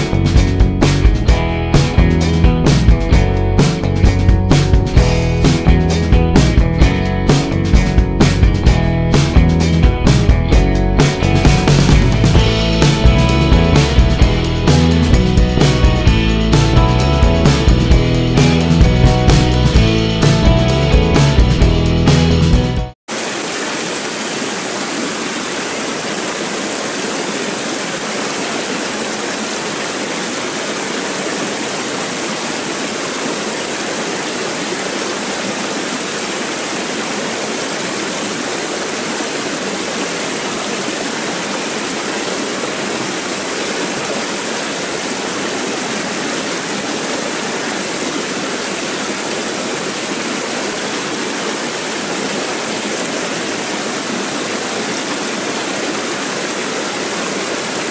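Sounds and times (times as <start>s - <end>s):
stream rushing over rocks: 23.1s - 57.9s.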